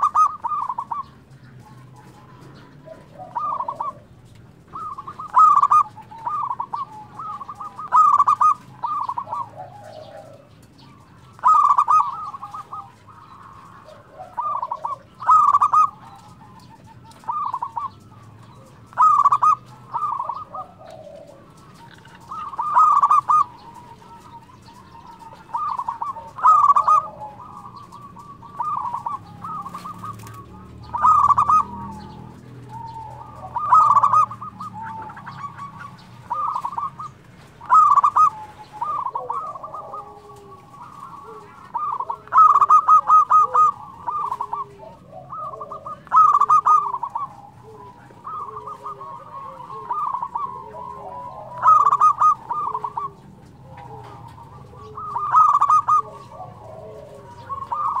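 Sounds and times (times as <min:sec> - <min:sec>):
dove cooing: 0:00.0 - 0:58.0.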